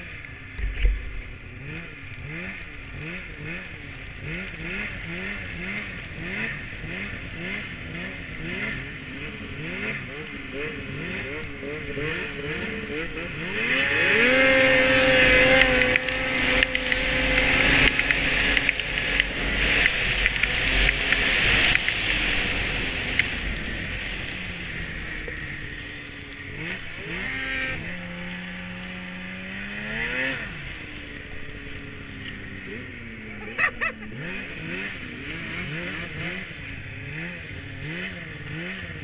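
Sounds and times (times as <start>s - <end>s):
snowmobile engine revving: 0.0s - 39.0s
track and snow rushing: 0.0s - 39.0s.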